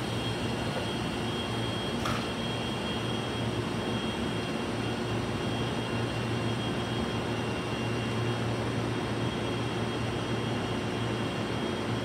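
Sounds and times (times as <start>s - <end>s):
thin high-pitched whine: 0.0s - 3.4s
low mechanical hum: 0.0s - 12.0s.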